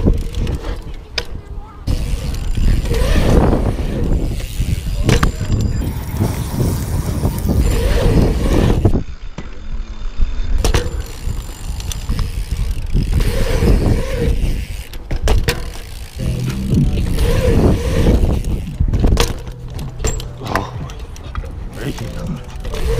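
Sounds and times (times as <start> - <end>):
bike tyre rumble on concrete: 0.0 - 22.9
wind buffeting microphone: 1.4 - 9.3, 10.5 - 14.9, 16.0 - 19.7.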